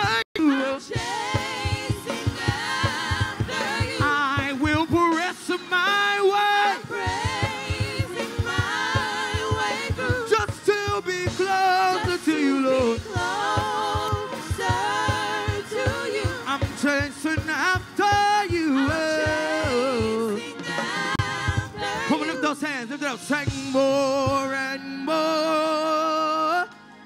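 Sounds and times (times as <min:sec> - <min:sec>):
people singing gospel song: 0:00.0 - 0:27.0
low drum beat: 0:01.0 - 0:05.0, 0:06.9 - 0:22.4.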